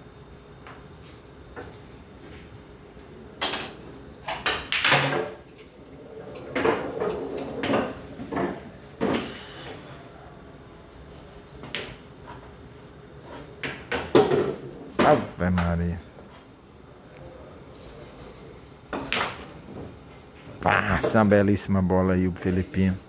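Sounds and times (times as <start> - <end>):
billiard balls clacking: 3.4 - 9.3.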